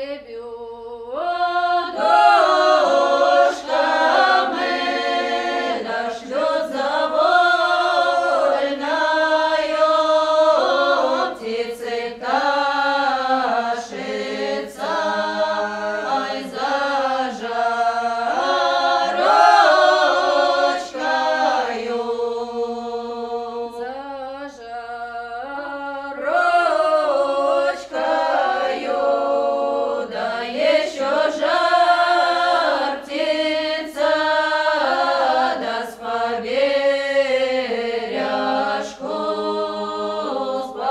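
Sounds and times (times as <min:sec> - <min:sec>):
choir singing unaccompanied: 0:00.0 - 0:40.9.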